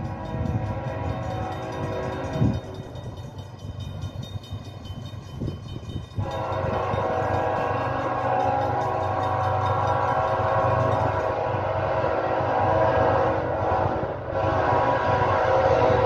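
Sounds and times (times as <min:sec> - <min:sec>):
locomotive air horn: 0:00.0 - 0:02.7, 0:06.2 - 0:16.0.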